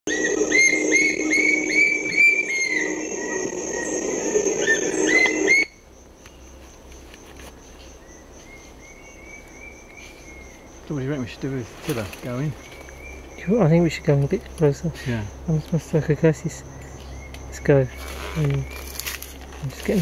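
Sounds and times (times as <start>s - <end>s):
bird upslurred whistles: 0.1s - 3.4s
high insect drone: 0.1s - 20.0s.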